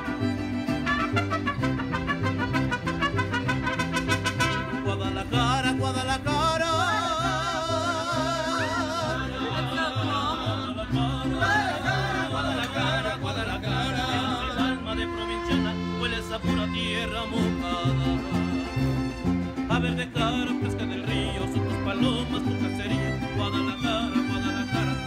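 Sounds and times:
bass line: 0:00.0 - 0:25.0
guitars: 0:00.0 - 0:25.0
person singing with vibrato: 0:04.6 - 0:18.7.

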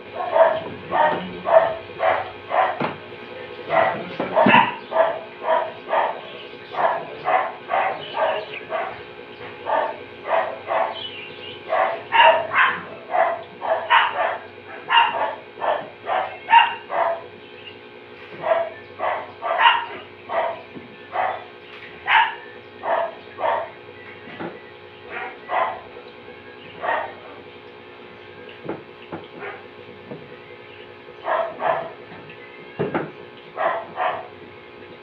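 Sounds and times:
dog barking: 0:00.1 - 0:02.9, 0:03.6 - 0:17.3, 0:18.3 - 0:23.8, 0:25.1 - 0:25.9, 0:26.8 - 0:27.5, 0:29.4 - 0:29.7, 0:31.2 - 0:32.1, 0:33.5 - 0:34.4.

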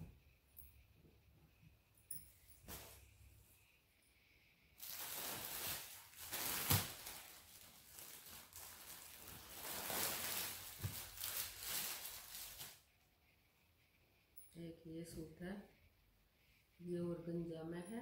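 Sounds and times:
plastic packaging crinkling: 0:04.8 - 0:12.8.

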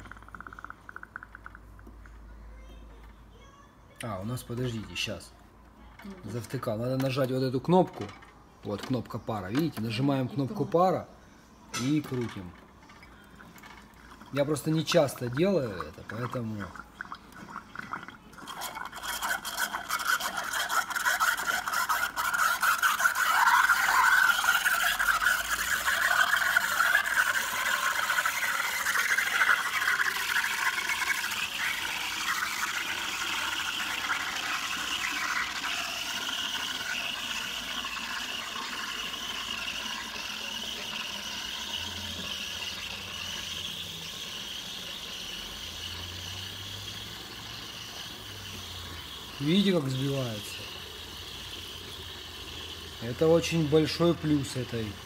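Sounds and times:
steam hissing into milk: 0:13.6 - 0:55.0.

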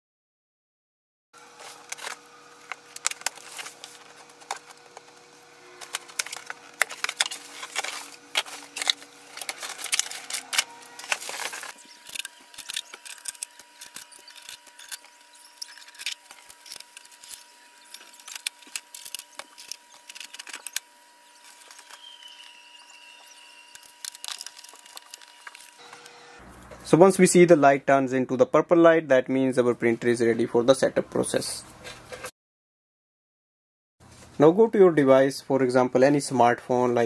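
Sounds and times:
cardboard and packing being handled: 0:01.4 - 0:22.6, 0:23.2 - 0:26.0
scissors cutting packing tape: 0:05.8 - 0:22.6, 0:23.3 - 0:26.1.

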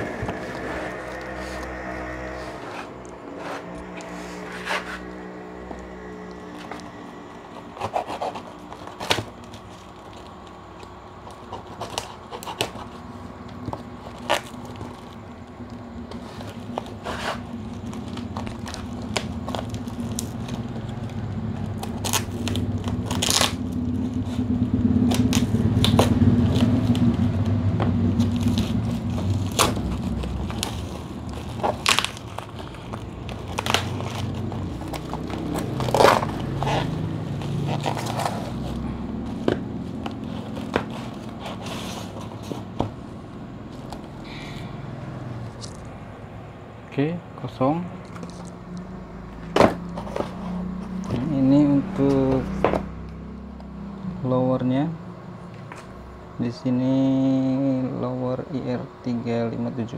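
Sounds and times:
tape and cardboard tearing: 0:00.0 - 0:06.9, 0:07.5 - 0:15.2, 0:16.1 - 0:27.3, 0:28.1 - 0:43.1
low rumble: 0:00.0 - 0:07.4, 0:15.5 - 0:49.4
knife slitting packing tape: 0:07.6 - 0:10.4, 0:11.4 - 0:13.0, 0:21.7 - 0:23.7, 0:29.4 - 0:38.7.

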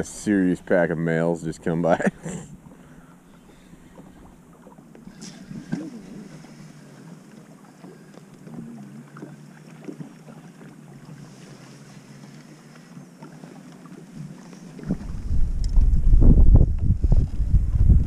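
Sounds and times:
wind: 0:00.0 - 0:18.0
water sloshing: 0:01.9 - 0:17.5
faint ticks: 0:06.7 - 0:10.1, 0:11.1 - 0:14.8
wind noise on microphone: 0:14.8 - 0:18.0
low rumble: 0:14.9 - 0:18.0.

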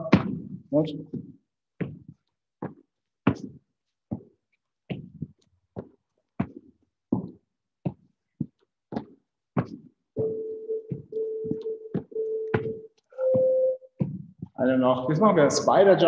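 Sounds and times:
hands and feet thudding on floor: 0:00.0 - 0:14.6.

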